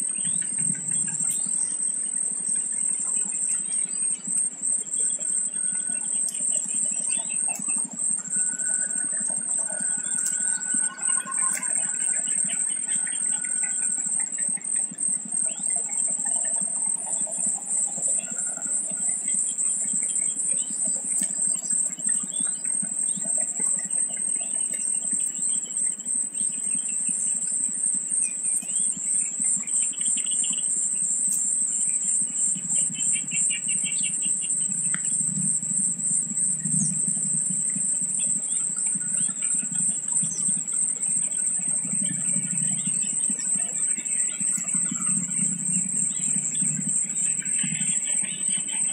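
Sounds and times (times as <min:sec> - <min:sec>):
small birds chirping: 0:00.0 - 0:08.4, 0:09.0 - 0:48.9
insect chorus droning: 0:00.0 - 0:48.9.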